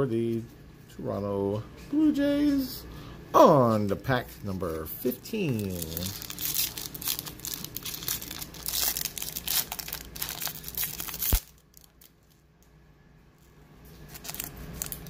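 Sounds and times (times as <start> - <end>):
foil wrapper crinkling and tearing: 4.4 - 12.4, 13.9 - 15.0.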